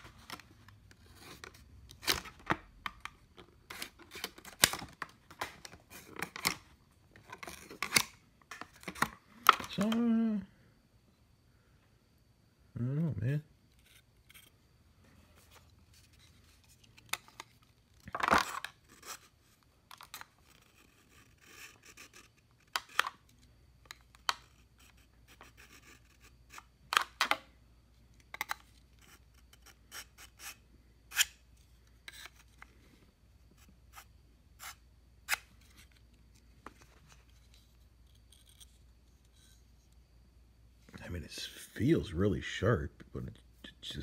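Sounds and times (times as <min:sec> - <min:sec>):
knife scraping through sharpener: 0:29.6 - 0:31.4.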